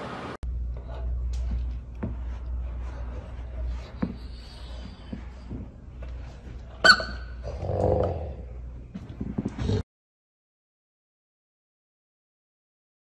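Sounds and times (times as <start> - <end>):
steady low hum: 0.4 - 9.8.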